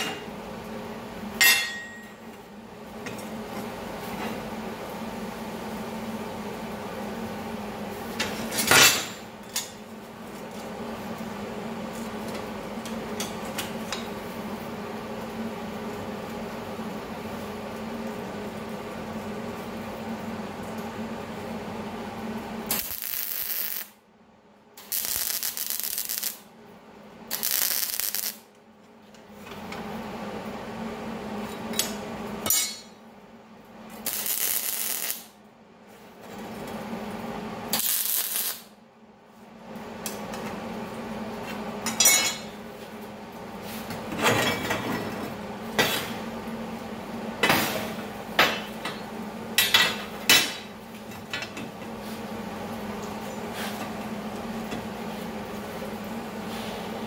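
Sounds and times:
welding arc hissing: 22.6 - 24.0, 24.8 - 26.5, 27.3 - 28.5, 33.9 - 35.4, 37.7 - 38.7.

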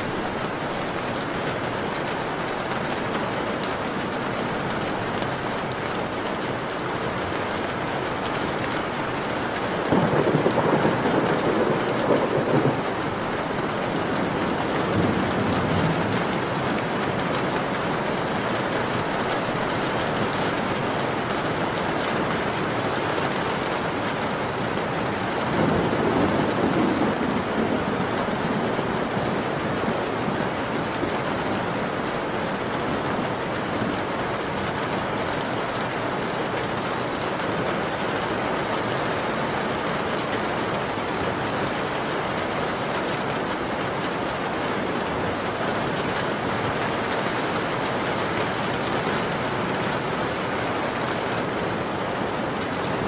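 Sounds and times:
steady rain falling: 0.0 - 53.0
thunder rolling: 9.8 - 13.2.

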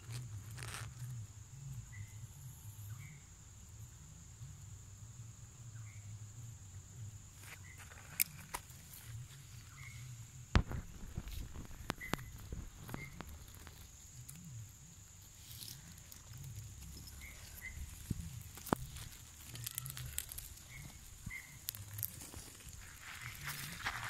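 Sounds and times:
phone rustling through grass: 7.4 - 14.5, 15.1 - 24.0
sharp clicks: 10.6 - 13.8.

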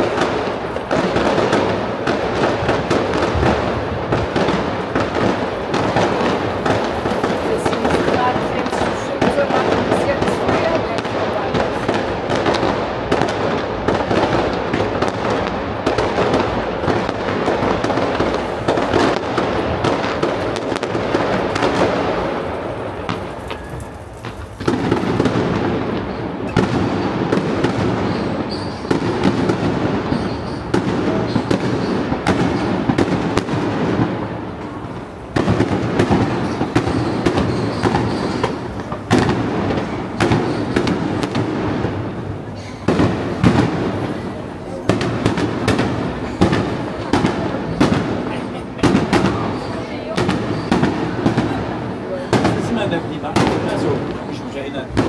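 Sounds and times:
fireworks bangs and crackling: 0.0 - 55.0.

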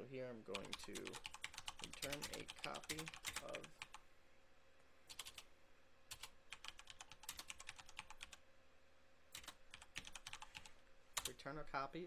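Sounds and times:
faint keyboard typing: 0.5 - 4.0, 5.0 - 5.5, 6.1 - 8.4, 9.3 - 11.5.

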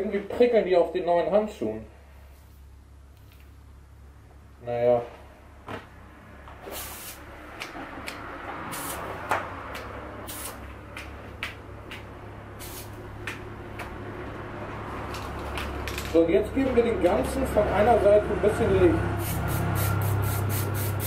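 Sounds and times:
aerosol spray can hissing: 6.6 - 7.2, 8.7 - 9.1, 10.3 - 10.6, 12.6 - 13.0, 19.2 - 21.0.

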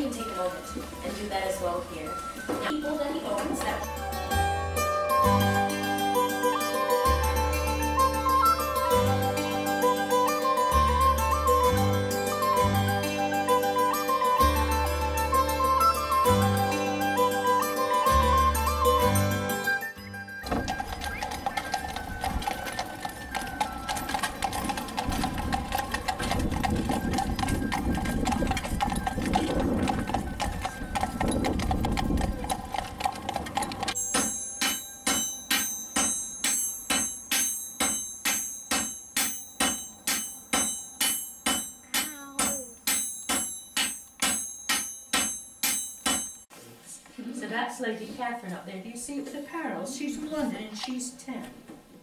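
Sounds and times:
low street rumble: 20.4 - 34.0
hammer striking iron on anvil: 34.0 - 46.5.

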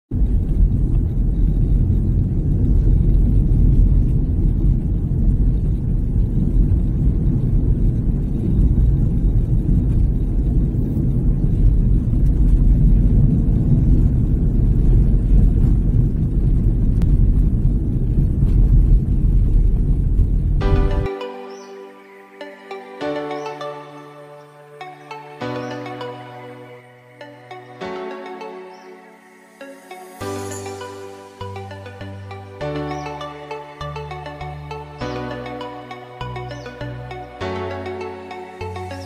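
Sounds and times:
car driving on road: 0.1 - 21.0.

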